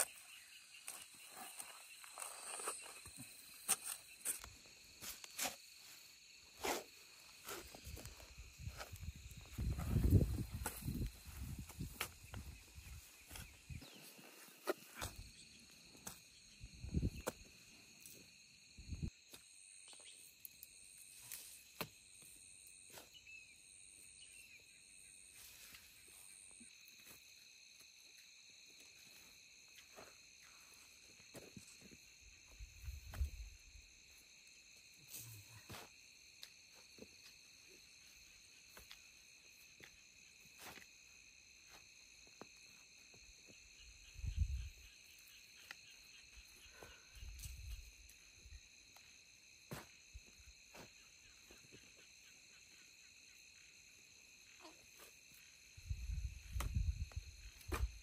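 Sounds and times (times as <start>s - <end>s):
hoes thumping into soil: 56.5s - 58.0s.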